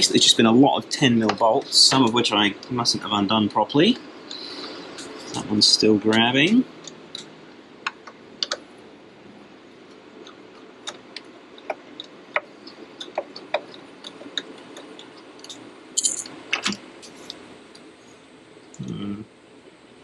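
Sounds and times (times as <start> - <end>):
tools tapping on engine parts: 14.8 - 16.8
metal parts clattering: 16.0 - 16.3.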